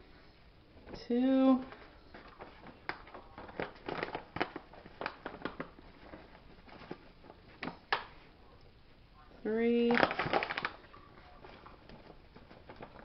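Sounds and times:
paper bag crinkling: 1.7s - 7.8s, 9.9s - 13.0s.

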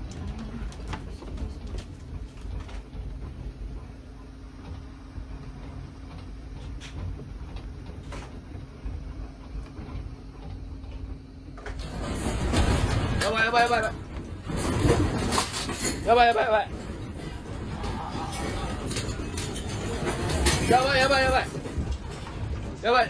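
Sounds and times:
steady hum: 0.0s - 23.0s
earthquake rumble: 11.7s - 23.0s.

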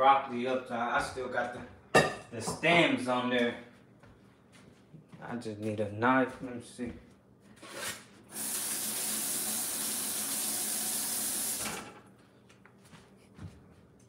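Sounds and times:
kitchen tap running: 8.3s - 12.0s.

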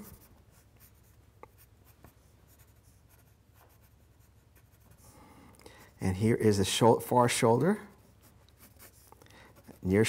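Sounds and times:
pencil scratching on paper: 0.0s - 5.1s, 7.8s - 10.0s.

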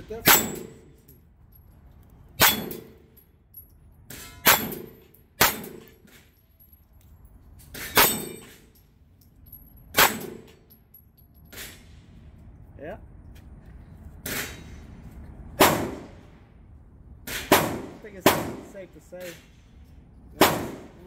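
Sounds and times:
steel target clanging: 0.0s - 1.1s, 2.4s - 3.2s, 4.1s - 6.4s, 7.7s - 8.8s
gunshots: 4.4s - 5.9s, 15.6s - 16.2s, 17.3s - 18.8s, 20.4s - 21.0s.

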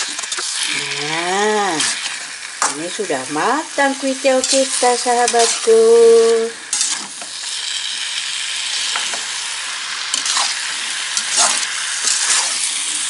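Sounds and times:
noodles sizzling in a wok: 0.0s - 13.0s
spatula scraping a pan: 4.4s - 7.6s, 8.7s - 13.0s.

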